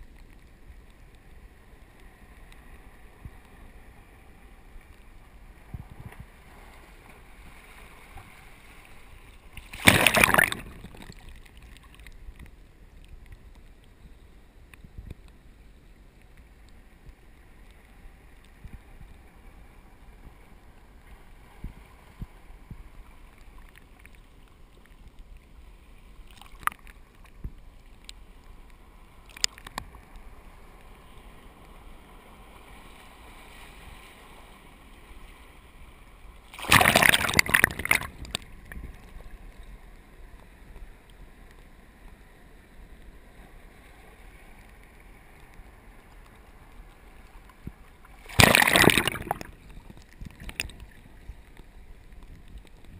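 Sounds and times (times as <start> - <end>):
wave splashing: 5.3 - 12.0, 36.4 - 39.0, 47.9 - 52.9
surf washing into tide pool: 5.4 - 11.9, 36.4 - 38.8, 48.0 - 51.5.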